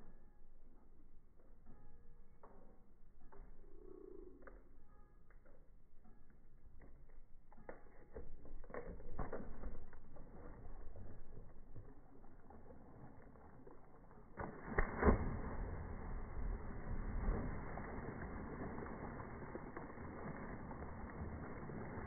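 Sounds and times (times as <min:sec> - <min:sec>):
rush of water noise: 0:12.4 - 0:22.0.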